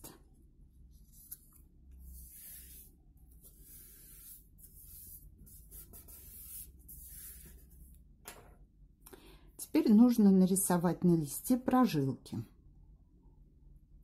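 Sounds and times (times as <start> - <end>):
palms rubbing paper: 0.9 - 7.8.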